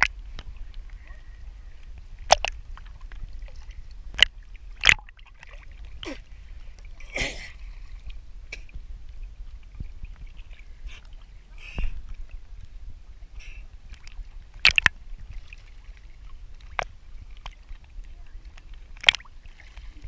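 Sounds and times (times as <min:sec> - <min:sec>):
water slapping against camera: 0:00.0 - 0:01.2, 0:02.0 - 0:06.2, 0:06.8 - 0:20.0
small water lapping: 0:00.0 - 0:20.0.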